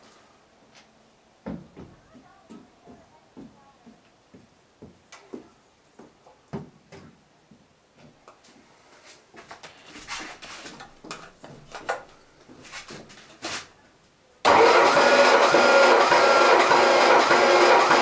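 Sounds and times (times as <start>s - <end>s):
engine cranking by starter motor: 14.4s - 18.0s.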